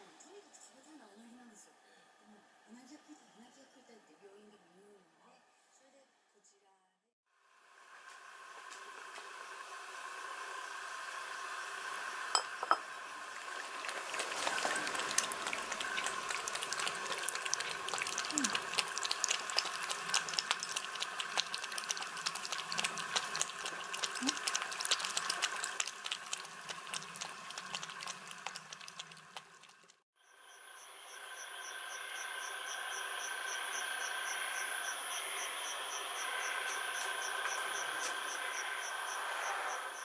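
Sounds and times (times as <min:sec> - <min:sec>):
cats lapping milk: 0:13.6 - 0:30.0.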